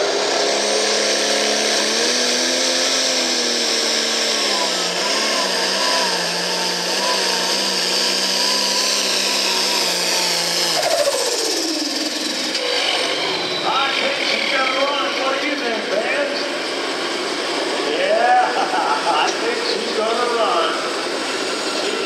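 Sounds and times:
tractor diesel engine labouring: 0.0s - 22.0s
high whine: 8.5s - 22.0s.

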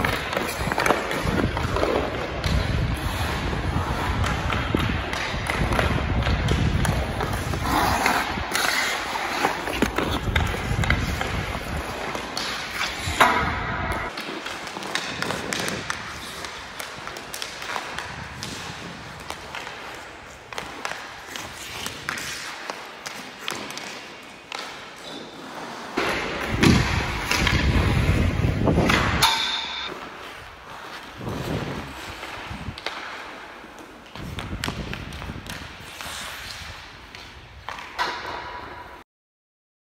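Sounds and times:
thuds of puck shots: 0.0s - 25.0s, 26.0s - 30.1s, 37.1s - 38.9s
hockey stick tapping puck: 0.0s - 25.4s, 26.0s - 39.0s
skate blades scraping ice: 0.0s - 39.0s.

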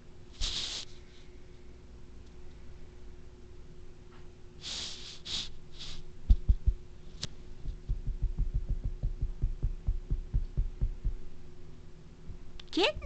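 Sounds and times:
faint steady hum: 0.0s - 13.0s
soft low thumps: 6.2s - 11.4s, 12.2s - 13.0s.

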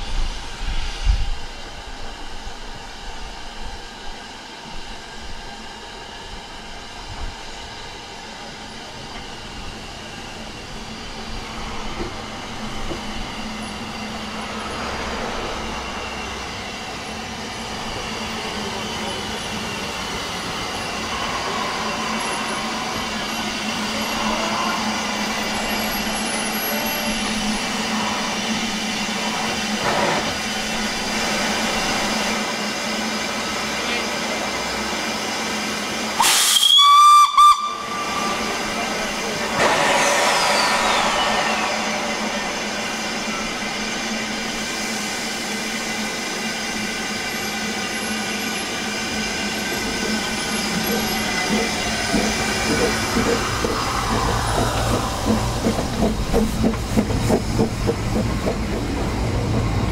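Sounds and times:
steam hissing: 0.0s - 59.9s
shrill steam whistle blast: 36.2s - 38.8s, 39.4s - 44.3s.

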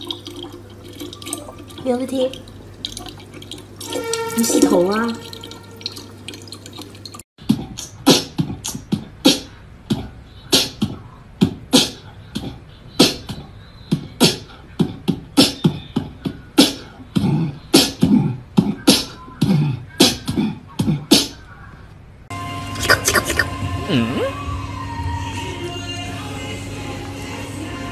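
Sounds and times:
running tap water: 0.0s - 7.2s
beatboxing mouth beats: 7.4s - 21.4s, 22.8s - 24.2s.

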